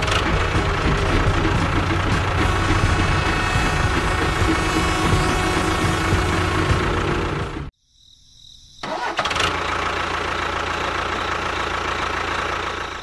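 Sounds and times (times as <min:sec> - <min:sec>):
motor humming: 0:00.0 - 0:07.7.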